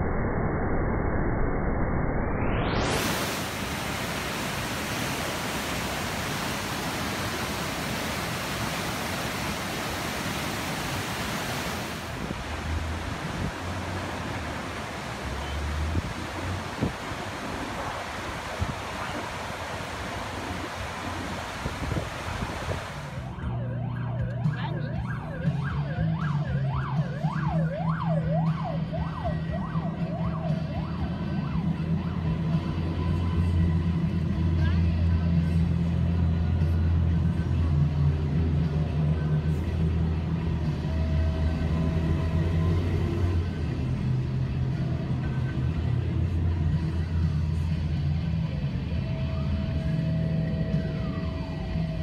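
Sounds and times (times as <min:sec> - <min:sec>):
siren sweeping up and down: 0:00.0 - 0:31.7
river rushing: 0:02.8 - 0:23.3
wind rumble on microphone: 0:02.8 - 0:23.3
diesel truck engines droning: 0:12.0 - 0:52.0.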